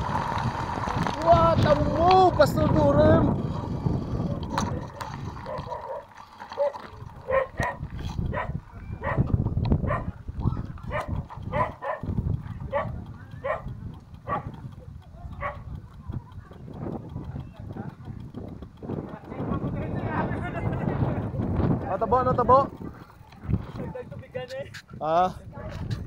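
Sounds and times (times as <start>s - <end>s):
steady low rumble: 0.0s - 26.0s
dog barking: 5.4s - 10.2s, 10.9s - 12.1s, 12.7s - 13.7s, 14.3s - 14.5s, 15.4s - 15.6s.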